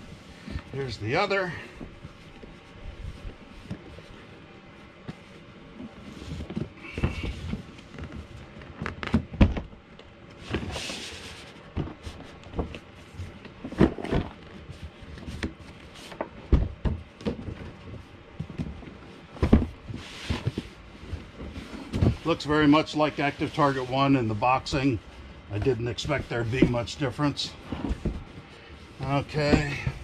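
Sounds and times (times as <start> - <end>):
cardboard box knocks and thumps: 6.2 - 9.8, 11.7 - 22.3, 29.3 - 30.0.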